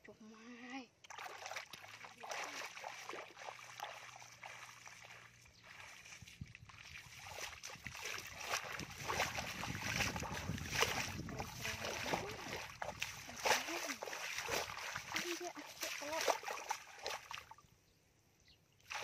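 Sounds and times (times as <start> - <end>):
feet splashing in muddy water: 1.0 - 17.7, 18.8 - 19.0
wind rumbling on microphone: 5.6 - 15.2.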